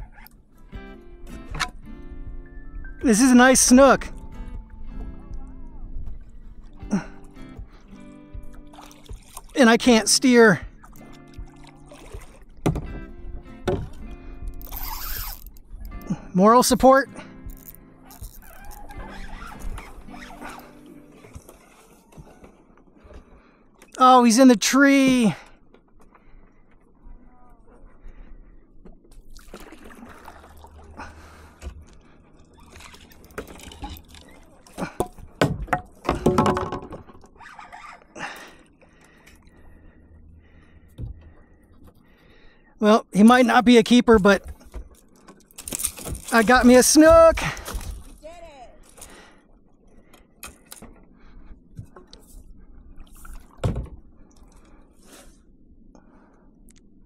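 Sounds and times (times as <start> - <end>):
water sloshing: 3.0 - 24.0, 25.1 - 55.4
fish splashing and thrashing: 6.1 - 16.2, 17.2 - 23.5, 29.1 - 42.5, 44.4 - 55.0
water dripping and splashing: 7.5 - 9.9, 10.6 - 12.8, 29.2 - 36.4
rod and paddle knocking on hull: 8.4 - 9.6, 10.7 - 14.1, 32.7 - 37.9, 53.5 - 54.0.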